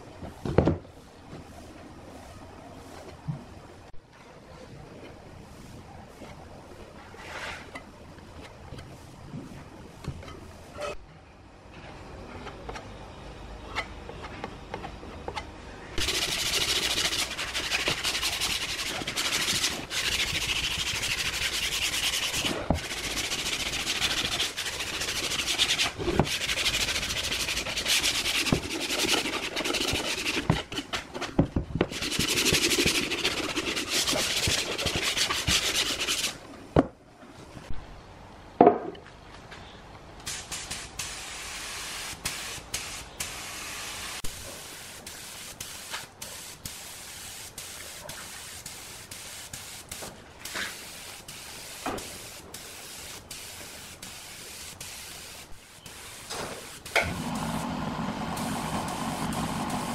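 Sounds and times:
sandpaper rubbing on wood: 16.0s - 31.1s, 31.9s - 36.4s.

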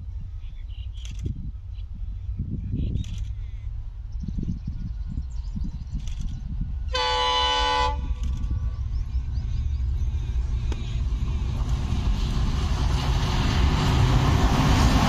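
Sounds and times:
train rumbling: 0.0s - 15.0s
locomotive horn blast: 6.9s - 8.2s.

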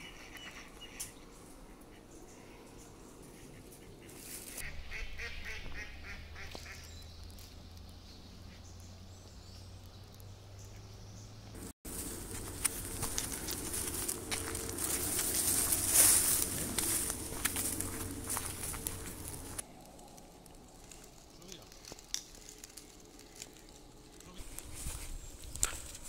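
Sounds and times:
ducks quacking: 3.2s - 6.9s
footsteps in grass: 4.0s - 4.7s, 5.4s - 8.3s, 11.6s - 26.0s.

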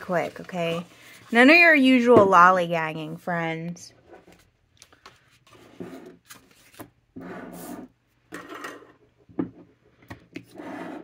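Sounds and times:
items rubbing on desktop: 0.0s - 1.8s, 5.4s - 8.8s.

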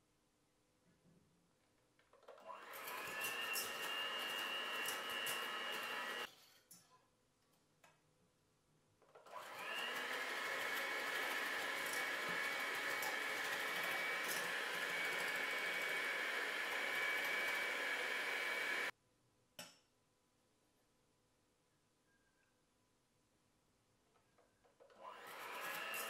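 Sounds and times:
electric hand mixer whipping: 2.4s - 6.3s, 9.3s - 18.9s, 25.0s - 26.0s.

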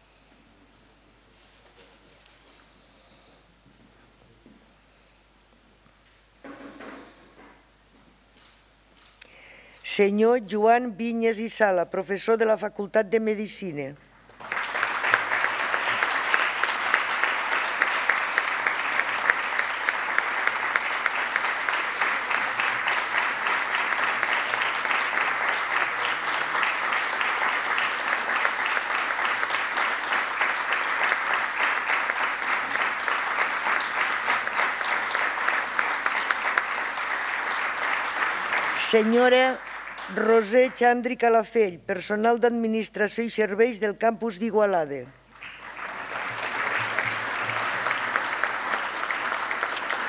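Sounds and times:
audience applauding: 14.3s - 40.8s, 45.3s - 50.0s.

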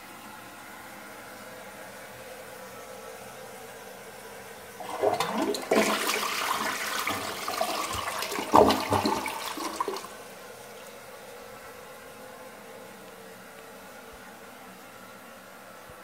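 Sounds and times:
toilet flushing: 4.8s - 10.3s.

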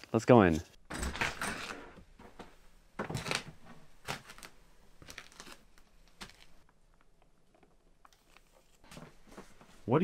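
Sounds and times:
food packaging crinkling: 3.2s - 8.9s.

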